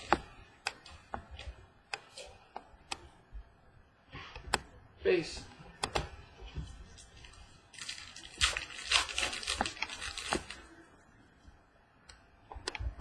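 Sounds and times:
trading cards rustling and scraping: 6.9 - 10.7.

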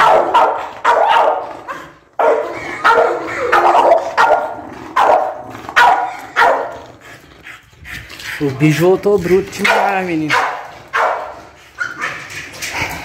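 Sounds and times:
dog barking aggressively: 0.0 - 7.2, 9.2 - 12.9.

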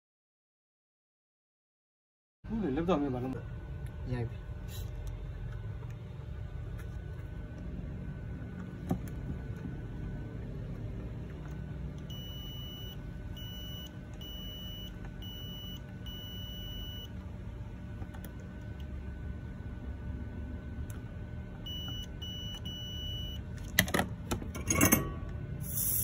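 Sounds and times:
steady low hum: 2.5 - 26.0
multimeter continuity beeps: 12.0 - 17.2, 21.6 - 23.4.

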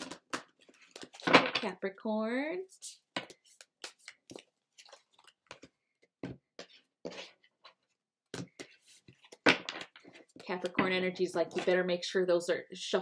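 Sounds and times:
cards being shuffled: 2.8 - 5.8.

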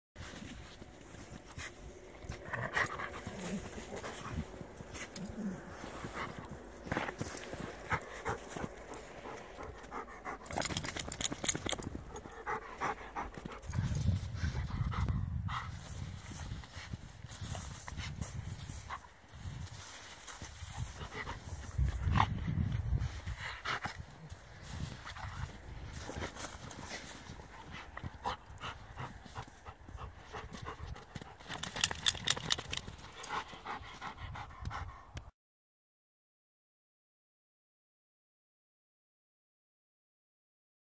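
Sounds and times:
footsteps crunching in snow: 0.2 - 9.8, 15.7 - 29.6
snow crunching: 0.2 - 9.8
snow crunching and rustling: 0.2 - 9.8, 15.7 - 28.2
dog panting: 1.4 - 15.7, 25.0 - 35.2.

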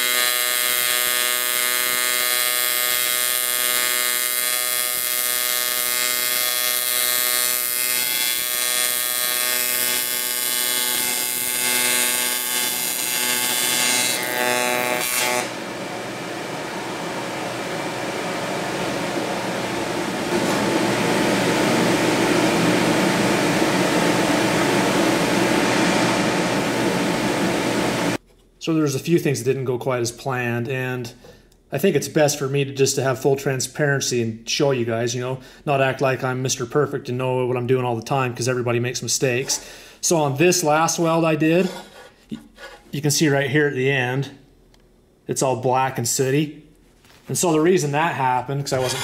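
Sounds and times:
welding arc buzz: 0.0 - 28.2, 48.7 - 49.0.

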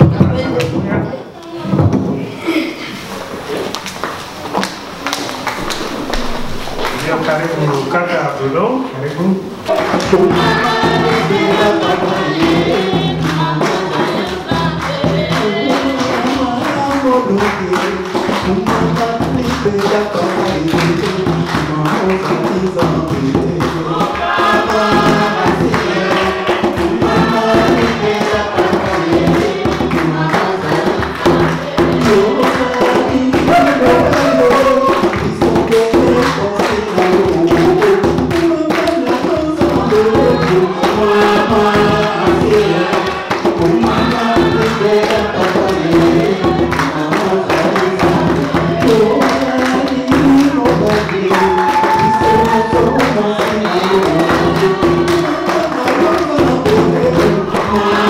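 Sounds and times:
steady percussion beat: 4.3 - 8.1, 9.5 - 58.0
voices singing together: 9.4 - 58.0
instruments: 15.0 - 58.0.

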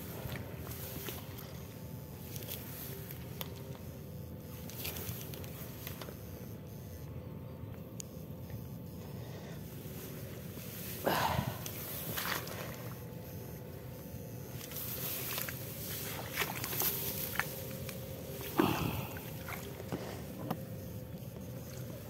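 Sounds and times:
shallow water splashing: 11.2 - 13.1, 14.6 - 20.4.

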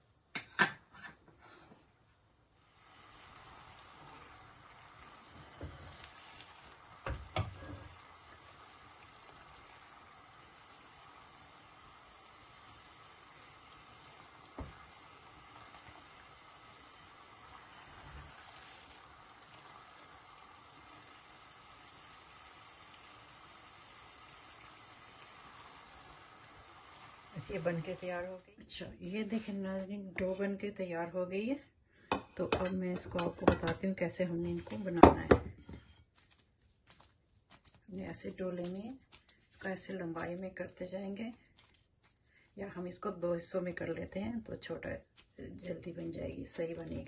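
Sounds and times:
sugar syrup boiling: 2.6 - 28.5.

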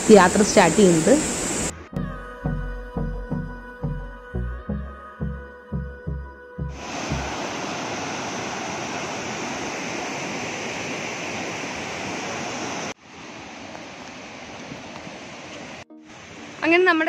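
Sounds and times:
river rapids rushing: 6.8 - 16.8.

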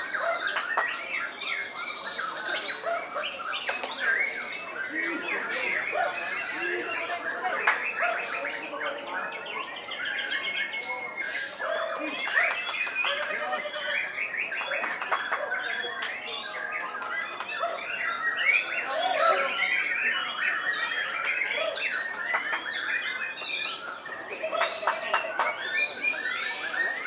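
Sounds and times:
birds singing: 0.0 - 27.0.

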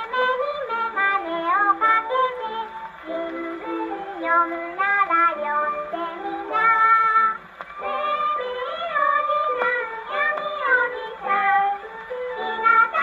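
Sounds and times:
girl singing children's song: 0.0 - 13.0
record surface clicks: 6.5 - 7.9.

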